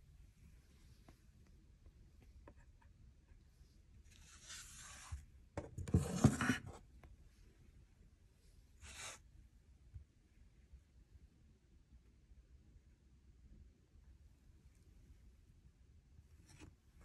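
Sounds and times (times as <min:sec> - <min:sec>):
hand rubbing over phone and table: 0:04.1 - 0:06.8.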